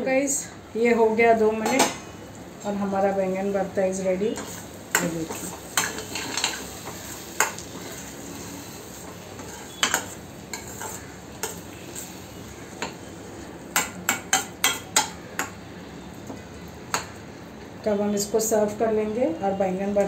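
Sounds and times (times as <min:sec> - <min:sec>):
food sizzling: 0:01.4 - 0:17.5
spoon clinking against pan: 0:09.5 - 0:11.6.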